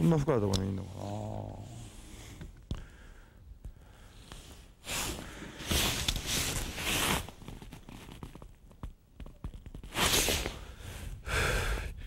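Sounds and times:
rain suit rustling: 4.8s - 8.6s, 9.8s - 10.7s.

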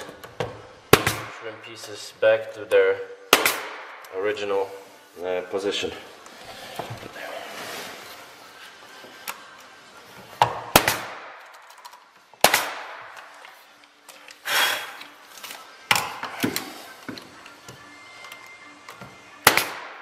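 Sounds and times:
nail gun firing: 3.3s - 4.0s, 12.4s - 13.1s, 19.4s - 20.0s.

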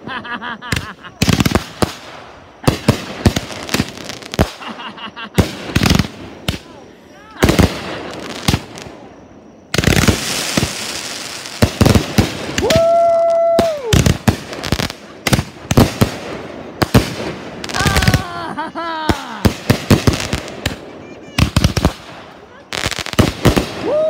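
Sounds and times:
firework bangs and crackles: 0.0s - 24.0s
long steady pitched tone: 6.1s - 11.6s.

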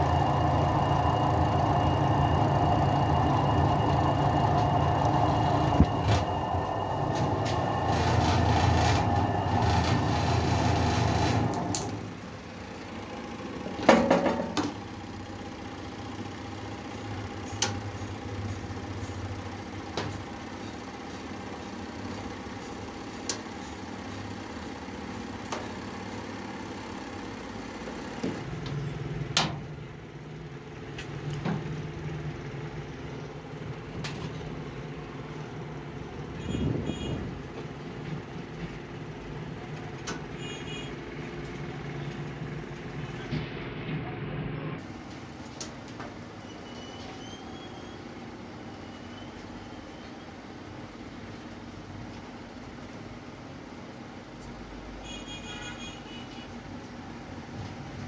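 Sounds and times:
washing machine motor humming: 0.0s - 45.4s.

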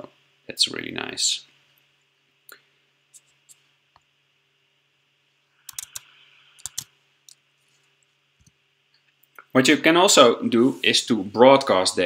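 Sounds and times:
faint low hum: 0.0s - 12.0s
mouse clicks: 5.6s - 7.4s.

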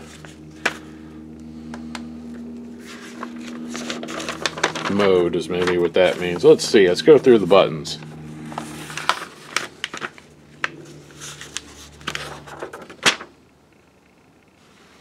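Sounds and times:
paper pages rustling: 0.0s - 0.9s, 2.6s - 7.3s, 8.0s - 13.4s.

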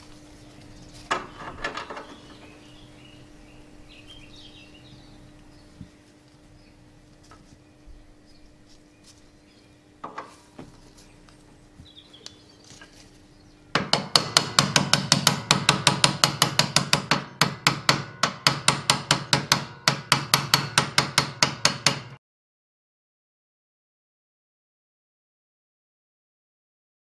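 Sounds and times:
small hammer tapping metal: 13.8s - 22.2s.

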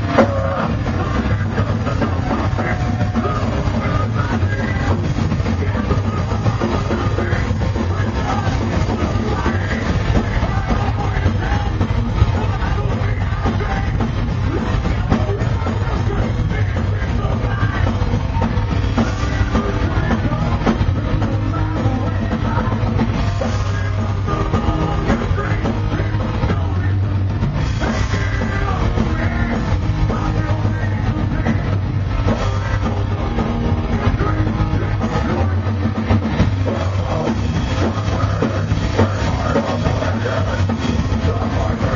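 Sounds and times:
metal band playing live: 0.0s - 41.9s
person singing into microphone: 0.0s - 41.9s.

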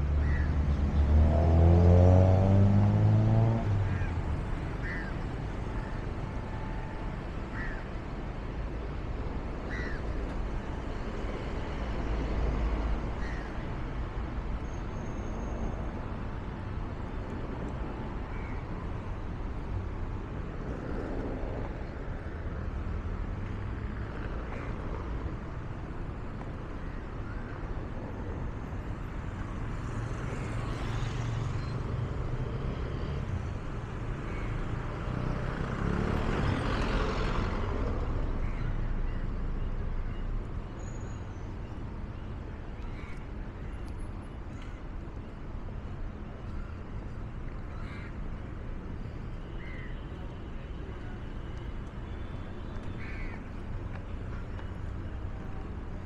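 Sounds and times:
traffic rumble: 0.0s - 56.0s.

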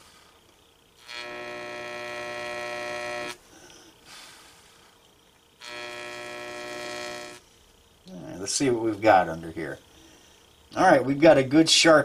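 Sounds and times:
etching machine buzzing: 1.0s - 3.4s, 5.6s - 7.5s.

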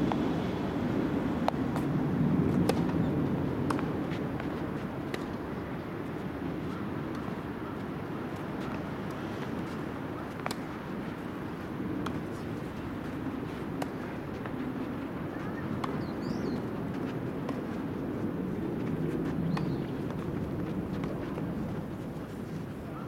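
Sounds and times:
traffic hum: 0.0s - 23.0s
tennis ball strikes: 2.6s - 3.0s, 3.6s - 4.5s, 10.4s - 10.6s.

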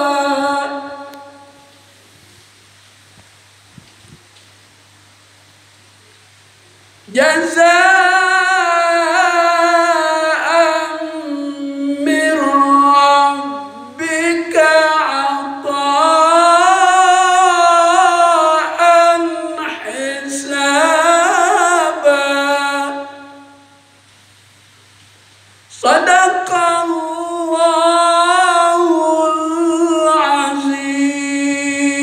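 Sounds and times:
man chanting melodically: 0.0s - 1.8s, 7.1s - 23.9s, 25.7s - 32.0s.

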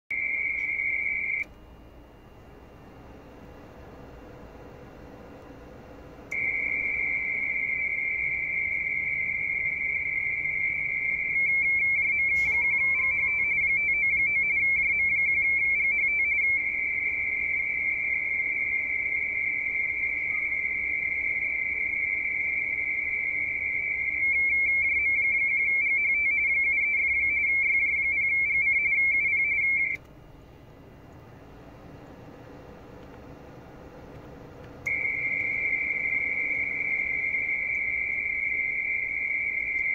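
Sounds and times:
warbling radio teletype tone: 0.1s - 1.5s, 6.3s - 30.0s, 34.9s - 39.9s
click with sliding chirp: 11.8s - 13.7s, 34.9s - 38.7s.

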